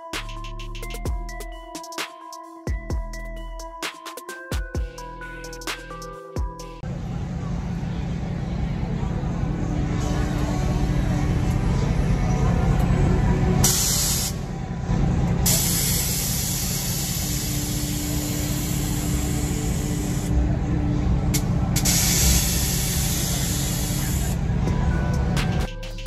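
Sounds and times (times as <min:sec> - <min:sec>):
compressed air hissing: 0:13.6 - 0:14.4, 0:15.5 - 0:20.3, 0:21.8 - 0:24.4.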